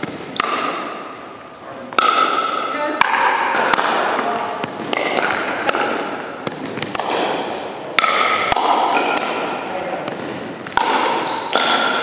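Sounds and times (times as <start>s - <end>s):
paddles hitting plastic ball: 0.0s - 1.2s, 1.9s - 12.0s
players' voices: 8.7s - 10.6s.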